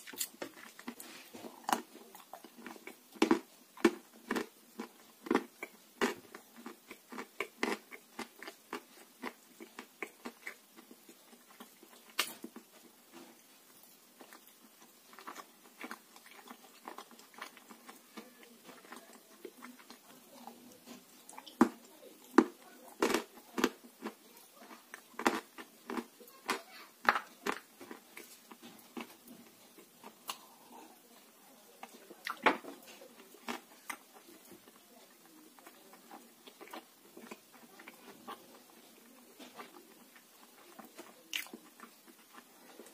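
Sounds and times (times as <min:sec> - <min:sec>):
person crunching and chewing clay: 0:00.0 - 0:13.3, 0:13.9 - 0:31.2, 0:31.8 - 0:34.8, 0:35.5 - 0:42.9.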